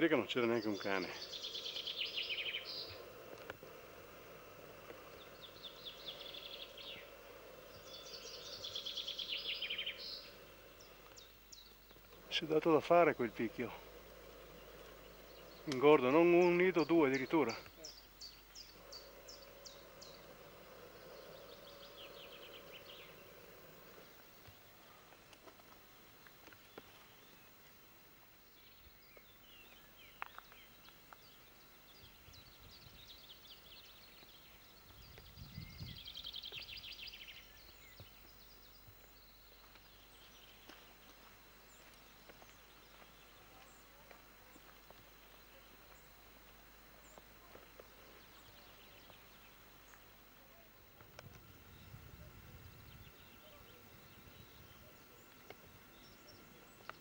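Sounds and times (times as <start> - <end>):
birds chirping and trilling: 0.0 - 27.6, 28.4 - 57.0.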